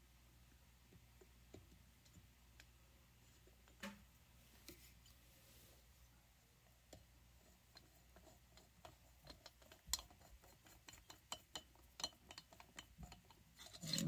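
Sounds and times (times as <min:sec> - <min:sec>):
small metal clicks and taps: 0:07.7 - 0:14.0.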